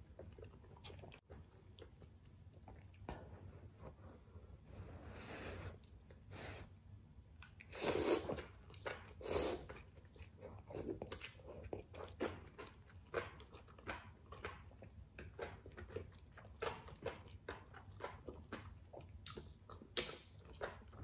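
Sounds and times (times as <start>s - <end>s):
wet chewing and mouth clicks: 0.0s - 4.0s, 7.4s - 21.0s
person slurping noodles: 7.7s - 8.4s.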